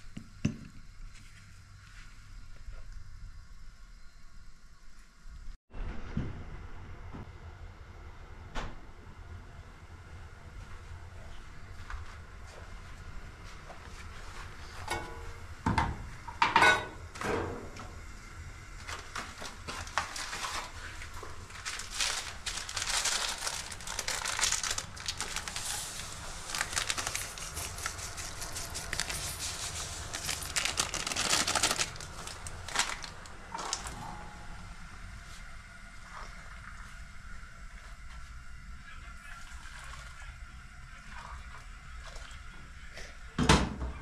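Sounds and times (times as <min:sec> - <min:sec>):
packet crinkling and rustling: 0:18.8 - 0:34.0.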